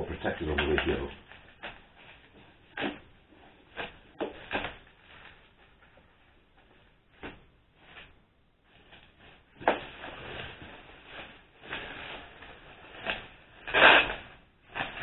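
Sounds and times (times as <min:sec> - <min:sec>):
bubble wrap crinkling: 0:00.0 - 0:15.0
knife cutting bubble wrap: 0:00.2 - 0:05.5, 0:11.2 - 0:15.0.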